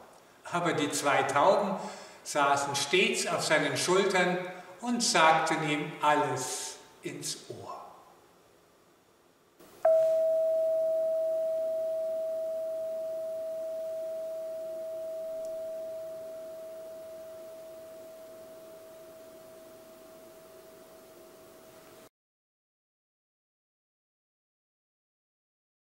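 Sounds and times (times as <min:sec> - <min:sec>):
struck metal ringing tone: 0:09.8 - 0:21.7.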